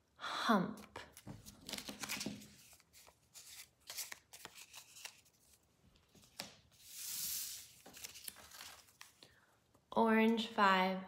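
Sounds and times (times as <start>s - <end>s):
soft paper rustle: 0.9s - 9.4s.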